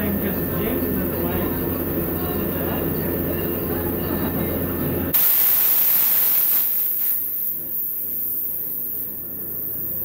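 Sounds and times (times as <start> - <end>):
low shop hum: 0.0 - 10.0
compressed air hissing: 5.1 - 9.2.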